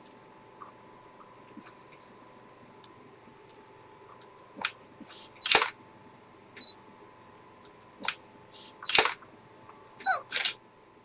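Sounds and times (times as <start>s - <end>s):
sharp mechanical clicks: 4.6s - 5.8s, 7.8s - 9.2s, 10.3s - 10.6s
short hissing snap: 4.6s - 5.8s, 8.0s - 9.2s.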